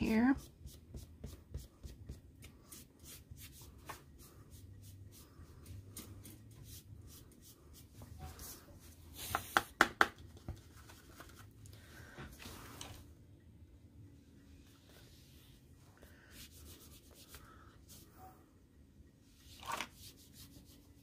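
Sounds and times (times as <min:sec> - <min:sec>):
foam dauber dabbing on paper: 0:00.0 - 0:08.6.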